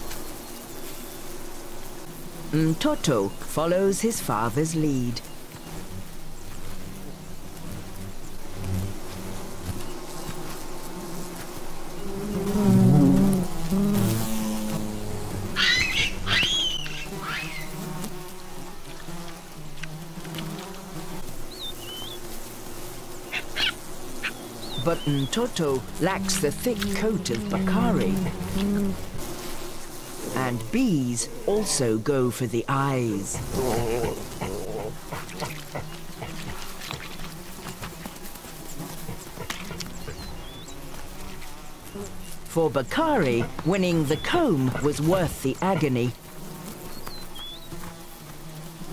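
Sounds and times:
crackles and rustles in dry grass: 0:00.0 - 0:02.4, 0:05.1 - 0:31.1, 0:33.1 - 0:42.5, 0:46.1 - 0:48.9
honeybees buzzing: 0:00.0 - 0:48.9
baboon crying in distress: 0:15.6 - 0:17.6
high squeals: 0:15.6 - 0:17.7.

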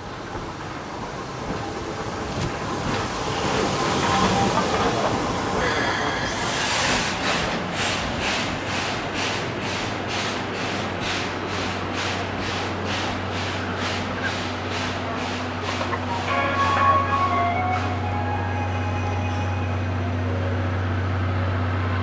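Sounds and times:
steam locomotive hissing steam: 0:00.1 - 0:20.6
train wheels clacking over rail joints: 0:06.8 - 0:16.1.

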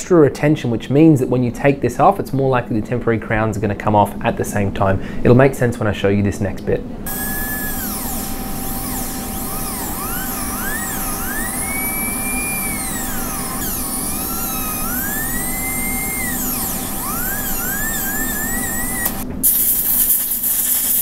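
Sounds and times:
air syringe hissing: 0:07.1 - 0:21.0
dental drill whining: 0:07.1 - 0:21.0.

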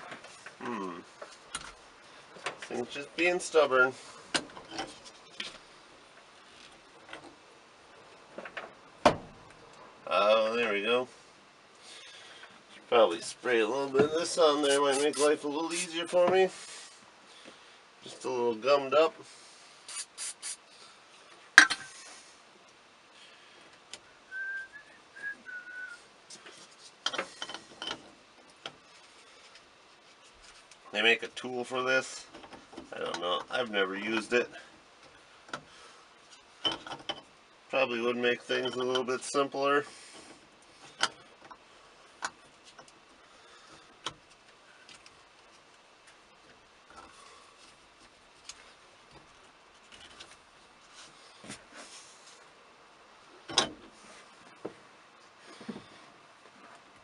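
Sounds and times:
sharp click with hiss: 0:19.9 - 0:20.6
person whistling soft notes: 0:24.3 - 0:26.0.

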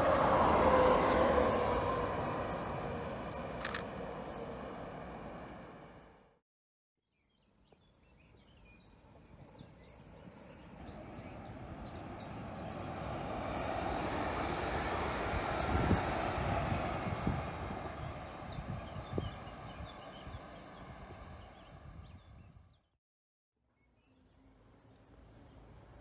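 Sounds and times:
electric train running past: 0:00.0 - 0:06.4, 0:10.2 - 0:21.5.

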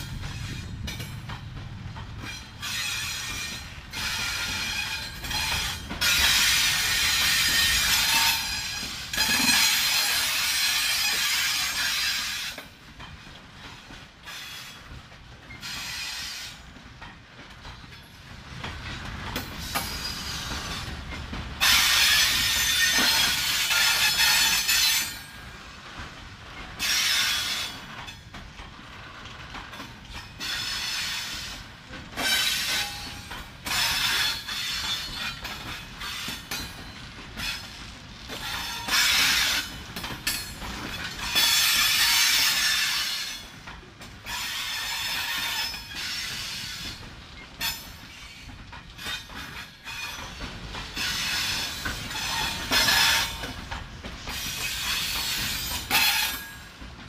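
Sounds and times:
low train rumble: 0:00.0 - 0:57.0
train wheels clanking and screeching: 0:00.0 - 0:57.0.

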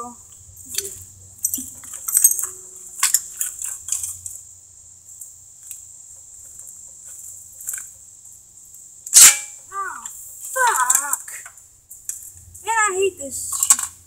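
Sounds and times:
metal engine parts clicking: 0:00.6 - 0:04.4, 0:05.6 - 0:08.0, 0:13.5 - 0:14.0.

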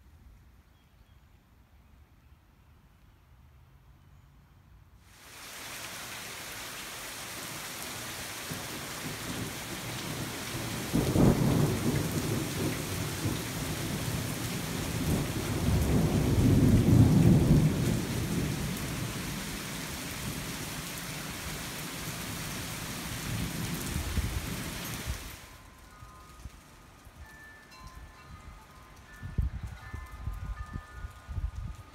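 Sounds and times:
rain hissing: 0:05.0 - 0:31.9
thunder clap and rumble: 0:08.5 - 0:19.5.

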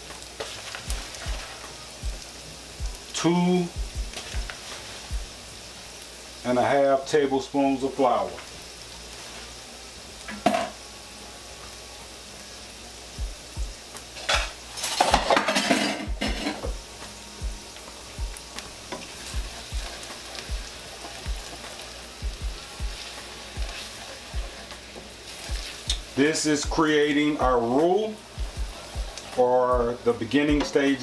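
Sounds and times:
oil sizzling in a skillet: 0:00.0 - 0:31.0.

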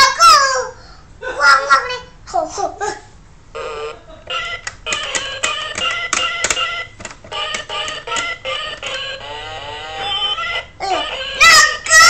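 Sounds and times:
toy keyboard beepy notes: 0:03.6 - 0:12.0.

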